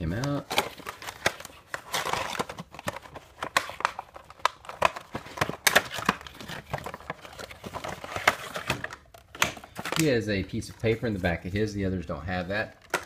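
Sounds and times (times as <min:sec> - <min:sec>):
cardboard packaging clicks and crinkles: 0:00.1 - 0:10.2.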